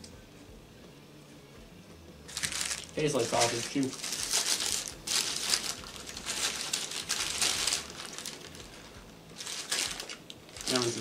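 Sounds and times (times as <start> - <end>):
paper wrapper crinkling: 2.3 - 11.0.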